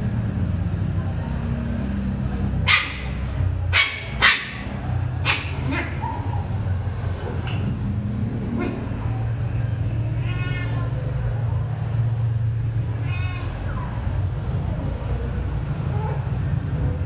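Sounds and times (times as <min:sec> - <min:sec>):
small dogs yipping and barking: 0:02.6 - 0:06.7.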